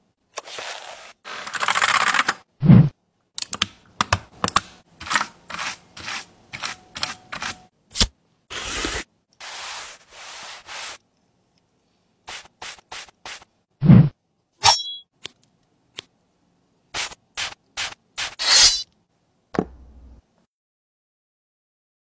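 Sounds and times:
brush strokes on keyboard: 0:08.8 - 0:11.0, 0:12.3 - 0:13.5.

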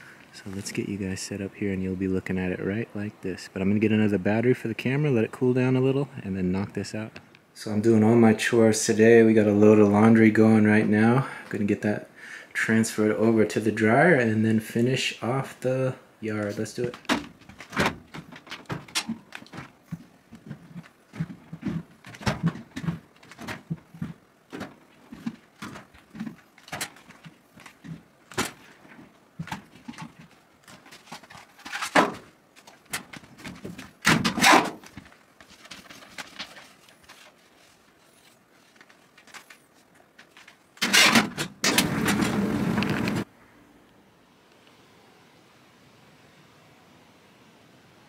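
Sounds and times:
laundry rustling and knocking: 0:16.8 - 0:43.3
thuds in dryer drum: 0:17.0 - 0:26.8.

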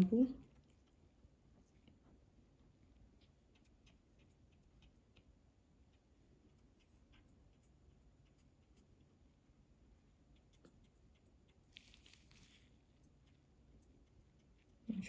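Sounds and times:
soft ticks and clicks: 0:09.9 - 0:15.0.

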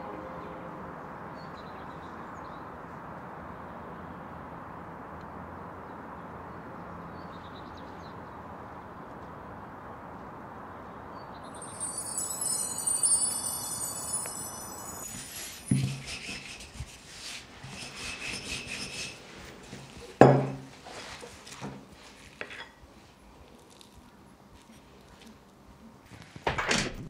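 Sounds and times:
shimmering wind chime ringing: 0:11.5 - 0:16.5
rolling pin rolling dough: 0:15.1 - 0:20.0.

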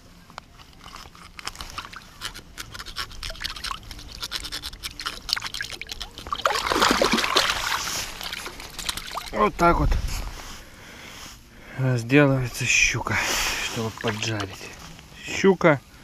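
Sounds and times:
water splashing: 0:02.8 - 0:09.6, 0:13.5 - 0:14.8.

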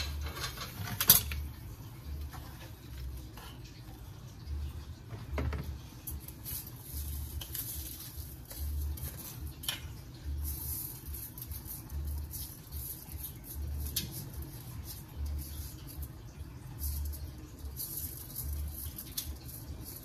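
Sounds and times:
metal spoon scraping colander: 0:00.0 - 0:01.5, 0:06.0 - 0:20.0
steady high hiss: 0:01.0 - 0:20.0.

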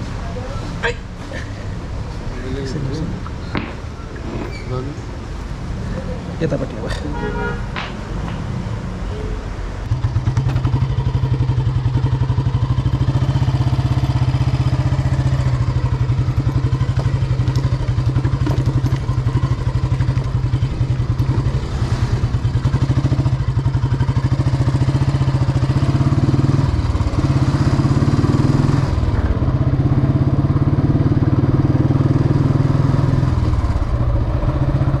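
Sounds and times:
motorcycle engine running: 0:09.9 - 0:35.0.

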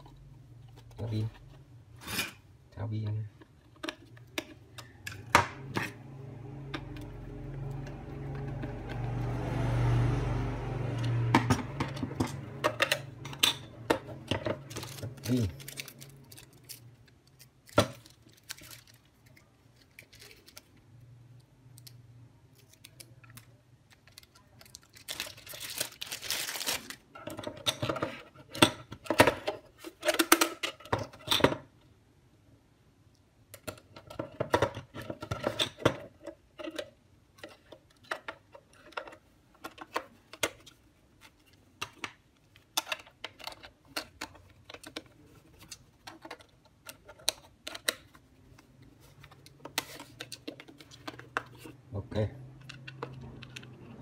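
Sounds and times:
plastic bag crinkling and tearing: 0:14.6 - 0:20.8, 0:22.6 - 0:27.1.

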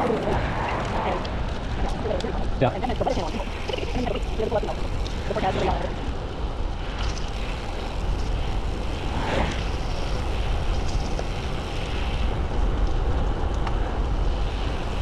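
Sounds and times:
wind rumbling on microphone: 0:00.0 - 0:15.0
tyres hissing on pavement: 0:02.6 - 0:13.4.

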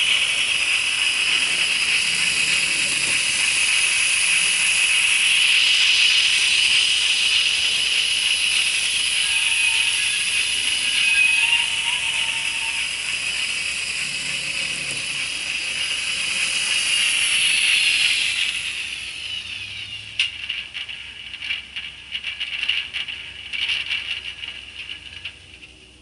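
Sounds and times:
model train electric whine: 0:00.0 - 0:26.0
crackling clicks: 0:19.4 - 0:25.8.

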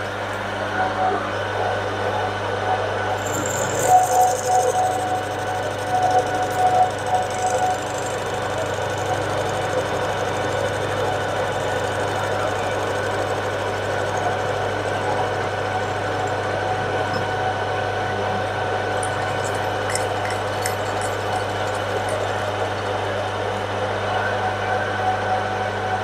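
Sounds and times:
motor and gearing hum: 0:00.0 - 0:26.0
metal lathe cutting: 0:03.2 - 0:16.3.

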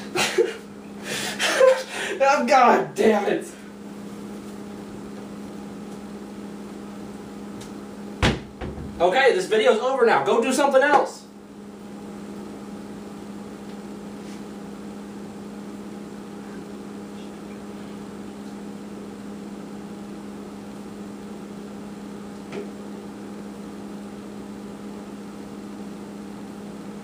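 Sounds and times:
appliance humming: 0:00.0 - 0:27.0.

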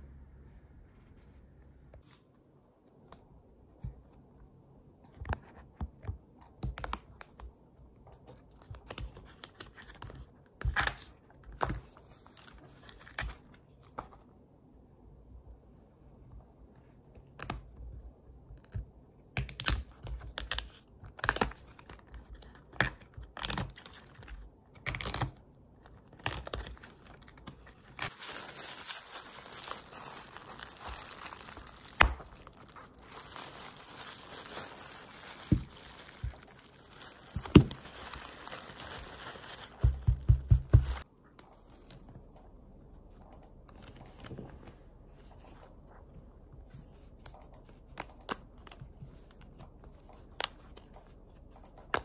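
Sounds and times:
plastic gloves crinkling: 0:25.8 - 0:41.0
flower bracts snapping and tearing: 0:27.9 - 0:40.2.

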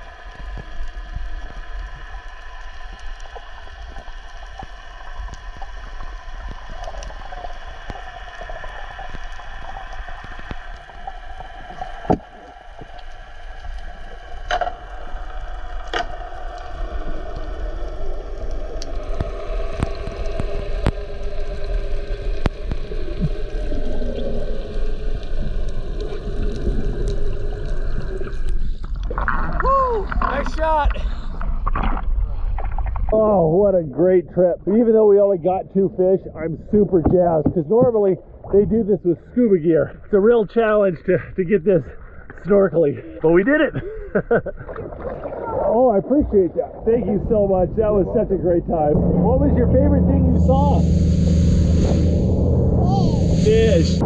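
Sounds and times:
muffled underwater rumble: 0:00.0 - 0:54.0
wavering hum: 0:48.9 - 0:54.0.

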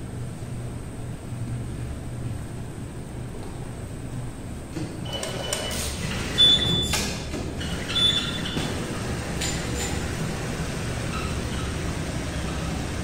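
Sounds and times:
steady low hum: 0:00.0 - 0:13.0
knitting machine carriage travelling: 0:05.1 - 0:13.0.

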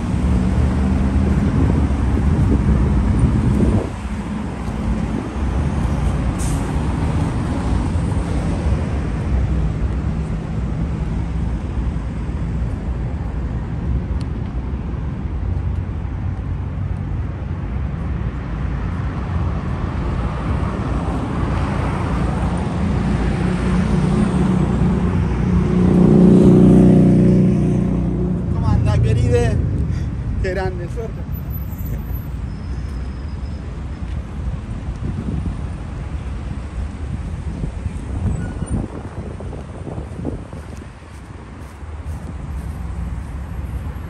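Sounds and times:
road traffic: 0:00.0 - 0:44.0
vehicle engine passing close: 0:22.8 - 0:31.1.

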